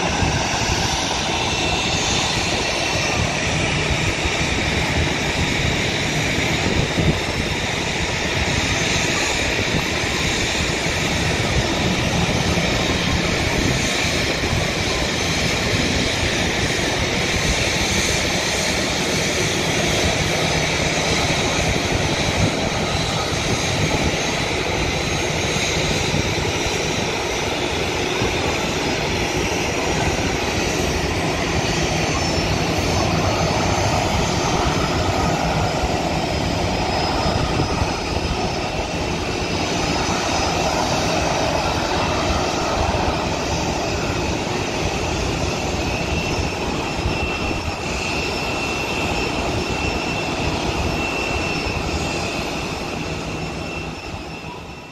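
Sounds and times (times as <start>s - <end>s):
jet engines idling with whine: 0.0s - 54.9s.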